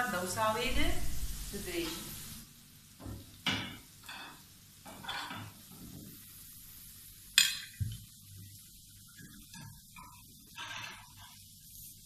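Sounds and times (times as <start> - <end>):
meat sizzling in a frying pan: 0.0 - 12.0
metal clink on pan: 3.5 - 5.5, 7.4 - 7.8
fork scraping a pan: 9.2 - 11.5.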